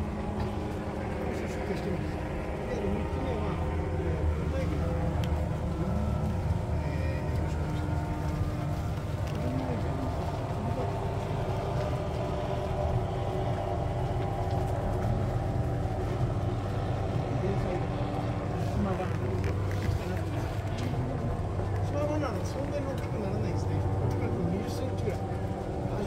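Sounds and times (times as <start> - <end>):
cart wheels rumbling on gravel: 0.0 - 26.0
faint voices: 0.0 - 26.0.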